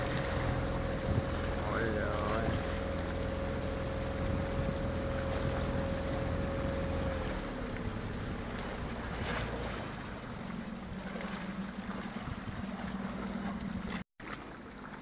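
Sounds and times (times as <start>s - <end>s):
wind on microphone: 0.0s - 8.0s, 12.1s - 14.0s
boat engine running: 0.0s - 15.0s
water rushing along hull: 0.0s - 15.0s.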